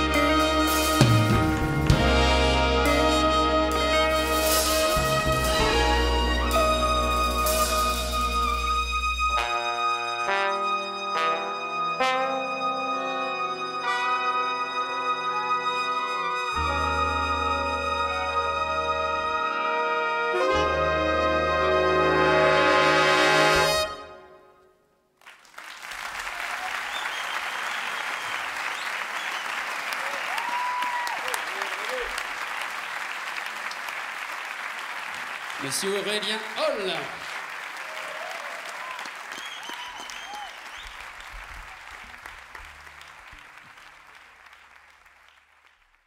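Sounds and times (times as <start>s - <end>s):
jazz band brass chord: 0.0s - 24.6s
audience applause: 25.2s - 46.0s.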